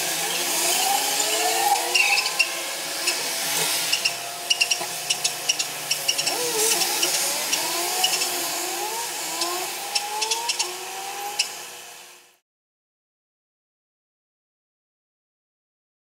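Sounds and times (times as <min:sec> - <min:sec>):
hiss of passing cars: 0:00.0 - 0:08.5
short rising tones: 0:00.2 - 0:11.8
sharp high chirps: 0:00.6 - 0:03.3, 0:03.9 - 0:08.4.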